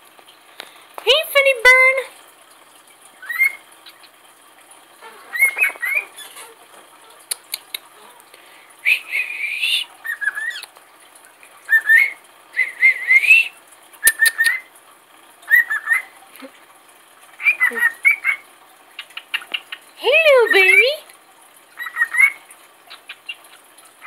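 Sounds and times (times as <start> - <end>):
sharp clicks: 7.3 - 7.9
parrots whistling chirps: 8.8 - 10.7, 11.7 - 14.7.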